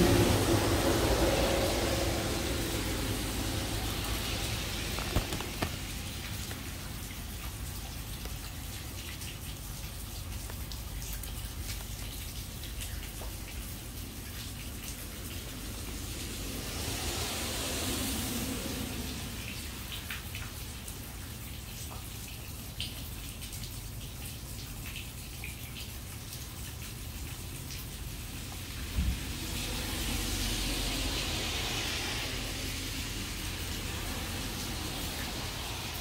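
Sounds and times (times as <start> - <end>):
car passing: 0.0 - 7.6, 15.3 - 20.1, 28.7 - 36.0
water falling on lawn: 0.0 - 36.0.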